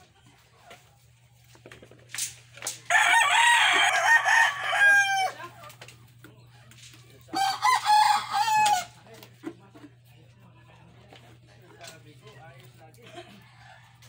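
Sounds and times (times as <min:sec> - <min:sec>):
rooster crowing: 0:02.9 - 0:05.5, 0:07.4 - 0:08.9.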